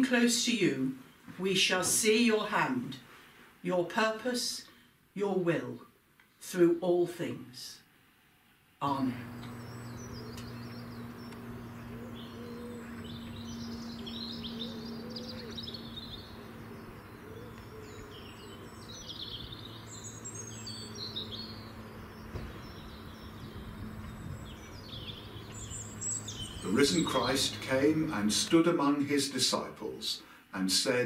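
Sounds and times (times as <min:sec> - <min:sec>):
small birds singing: 0:08.4 - 0:29.2
steady low hum: 0:08.8 - 0:30.4.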